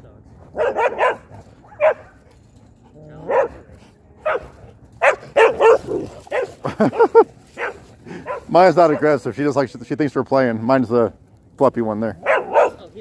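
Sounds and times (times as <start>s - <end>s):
dog barking: 0.6s - 2.2s, 3.2s - 6.6s, 7.6s - 9.1s, 12.2s - 12.9s.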